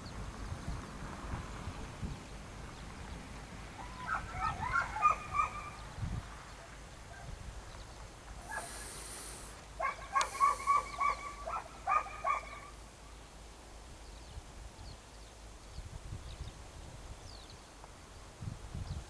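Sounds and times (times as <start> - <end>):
distant animal calling: 3.8 - 5.9, 8.4 - 12.8.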